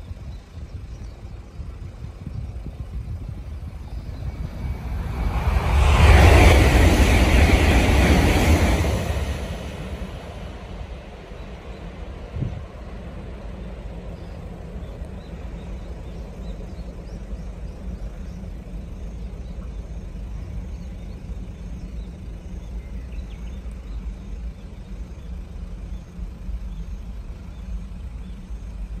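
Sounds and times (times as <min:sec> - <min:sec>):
wind buffeting microphone: 0:00.0 - 0:29.0
rushing noise: 0:01.8 - 0:19.4.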